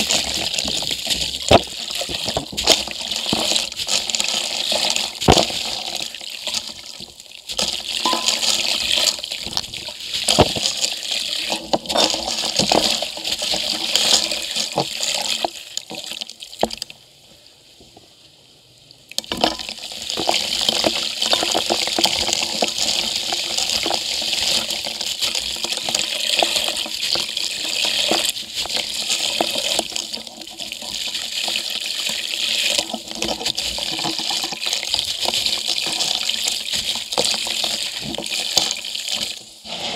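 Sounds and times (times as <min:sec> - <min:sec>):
concrete crumbling into steel bucket: 0:07.5 - 0:09.6.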